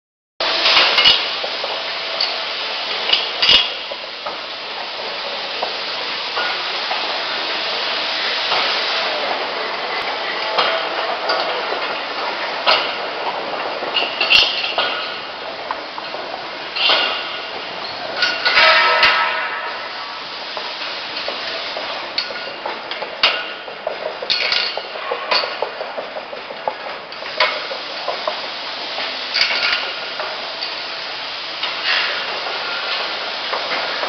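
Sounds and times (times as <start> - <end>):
sharp metallic clanks: 3.1 - 3.9, 13.9 - 15.3, 16.0 - 20.2
chain conveyor clattering: 9.9 - 19.9, 20.8 - 31.0.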